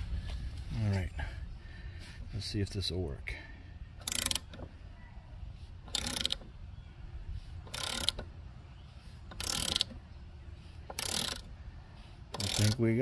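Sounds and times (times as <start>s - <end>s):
socket ratchet clicking: 4.0s - 4.7s, 5.8s - 6.5s, 7.6s - 8.3s, 9.3s - 10.0s, 10.9s - 11.5s, 12.3s - 12.8s.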